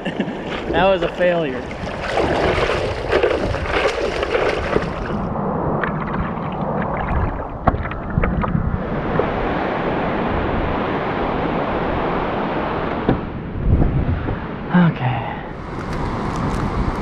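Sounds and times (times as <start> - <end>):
ocean surf rushing: 0.0 - 17.0
water splashing around surfboard: 0.3 - 9.5
wind on microphone: 0.3 - 14.7, 15.4 - 17.0.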